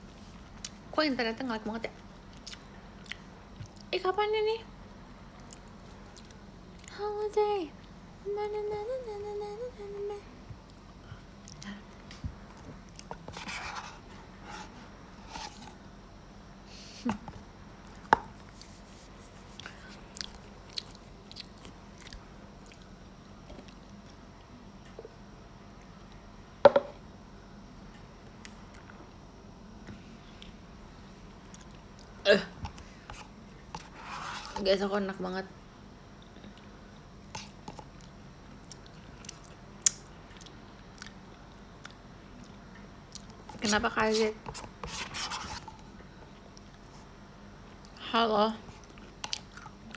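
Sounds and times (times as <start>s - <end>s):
chewing: 19.5s - 22.9s, 37.3s - 41.2s, 48.7s - 49.9s.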